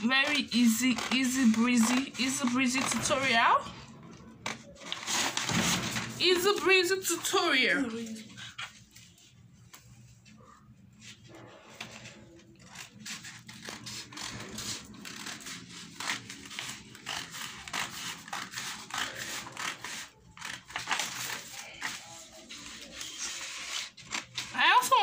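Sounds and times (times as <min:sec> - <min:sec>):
scissors snipping paper: 0:00.0 - 0:03.4, 0:11.7 - 0:25.0
paper rustling: 0:00.0 - 0:25.0.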